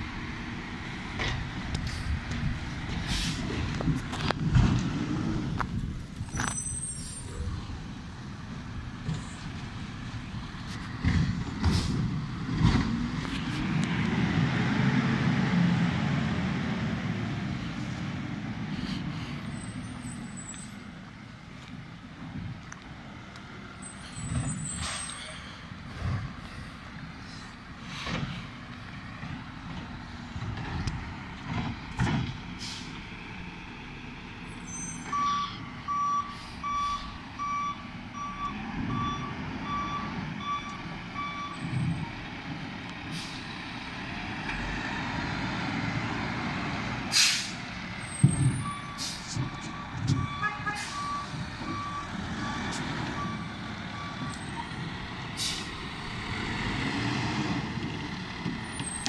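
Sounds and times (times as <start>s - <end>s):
air brake hiss: 3.1s - 3.5s, 32.6s - 33.0s, 47.1s - 47.6s, 55.4s - 55.8s
reversing alarm beeping: 34.6s - 41.7s, 48.1s - 54.7s.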